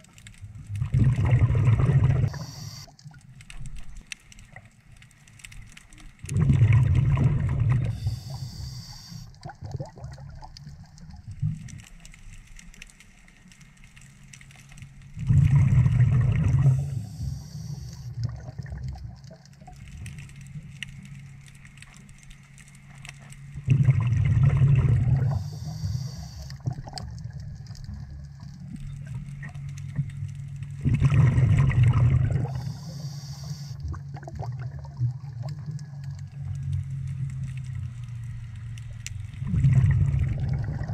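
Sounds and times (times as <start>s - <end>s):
gurgling exhaled bubbles: 0.7s - 2.8s, 6.2s - 8.6s, 9.4s - 11.7s, 15.2s - 19.8s, 23.6s - 29.6s, 30.8s - 33.0s, 33.8s - 36.0s, 39.4s - 40.9s
regulator hiss: 7.9s - 9.3s, 25.4s - 26.6s, 32.4s - 33.8s.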